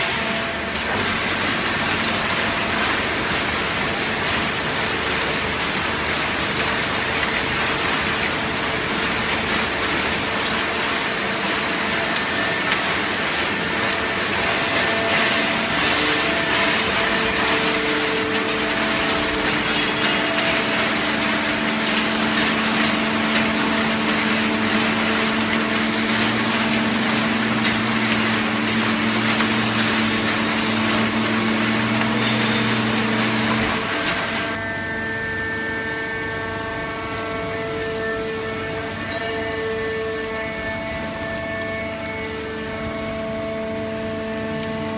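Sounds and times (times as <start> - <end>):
baler machine din with hum: 0.0 - 35.3.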